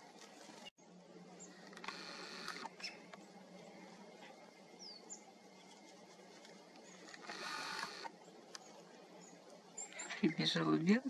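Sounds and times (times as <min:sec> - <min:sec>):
faint high bird chirps: 0:02.6 - 0:03.1, 0:04.8 - 0:05.8, 0:08.5 - 0:10.8.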